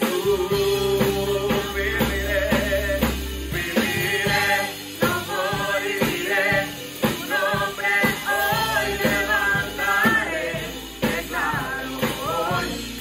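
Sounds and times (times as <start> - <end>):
backing vocalists singing: 0.0 - 13.0
drum kit beat: 0.0 - 13.0
keyboard: 0.0 - 13.0
man singing: 0.0 - 13.0.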